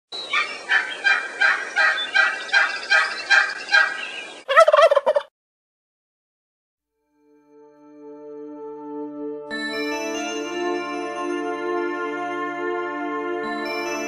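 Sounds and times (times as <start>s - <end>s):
bird calls: 0.1s - 5.2s
warbling bird call: 0.2s - 5.2s.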